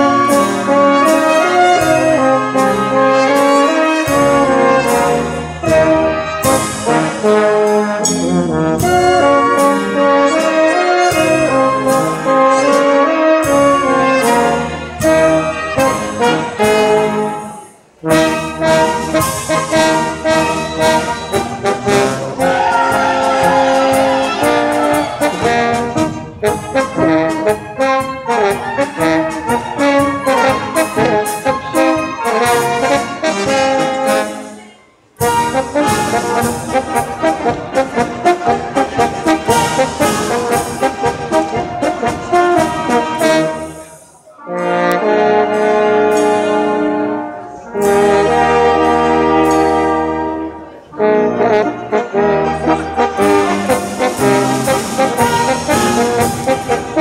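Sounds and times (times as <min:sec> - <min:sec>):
brass band playing folk dance music: 0:00.0 - 0:57.0.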